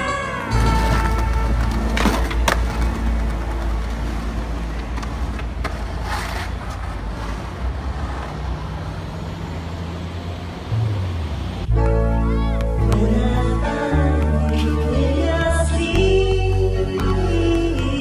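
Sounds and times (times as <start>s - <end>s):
street traffic: 0.0s - 18.0s
skateboard wheels rolling: 0.4s - 9.0s
skateboard clacks: 0.5s - 7.4s.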